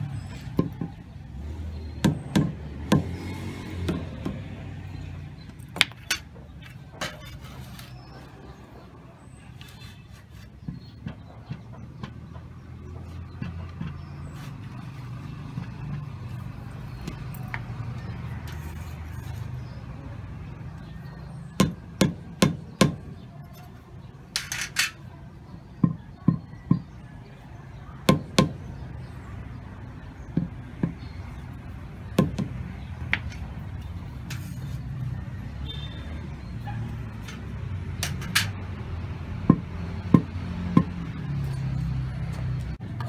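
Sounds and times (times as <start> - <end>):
rubber mallet knocking concrete block: 21.6 - 23.0, 28.1 - 28.6, 32.2 - 33.3, 39.4 - 41.0.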